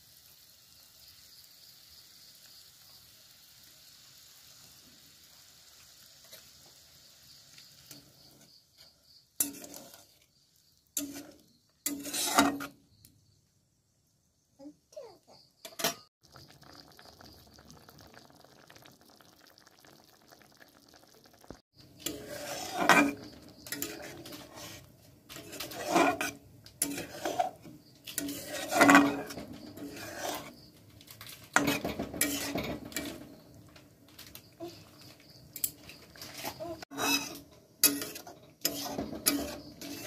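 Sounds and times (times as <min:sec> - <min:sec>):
curry simmering hiss: 0:00.0 - 0:12.8, 0:16.2 - 0:40.0
spatula scraping metal pan: 0:07.9 - 0:10.3, 0:10.9 - 0:12.8, 0:21.9 - 0:33.8, 0:35.8 - 0:40.0.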